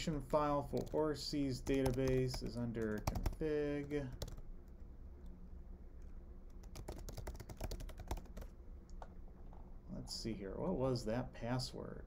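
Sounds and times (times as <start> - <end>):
computer keyboard typing: 0.8 - 1.0, 1.6 - 4.4, 6.5 - 9.1.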